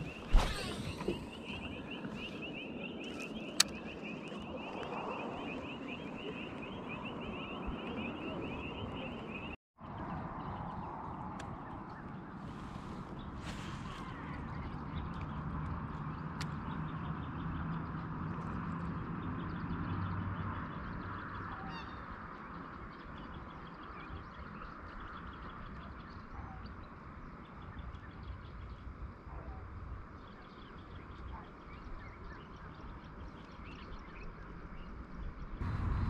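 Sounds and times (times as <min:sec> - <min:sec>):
low rumble: 0:35.6 - 0:36.0.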